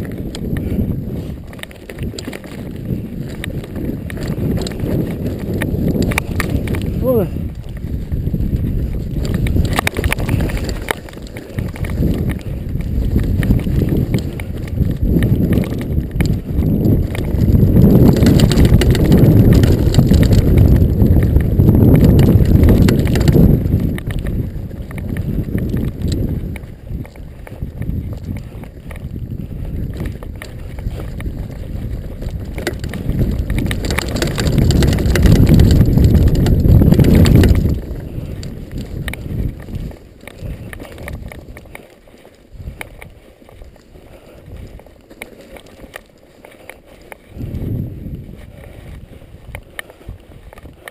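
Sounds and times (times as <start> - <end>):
bike rattling: 0.0 - 50.9
bike tyres on dirt and stone: 0.0 - 50.9
wind buffeting microphone: 0.0 - 50.9.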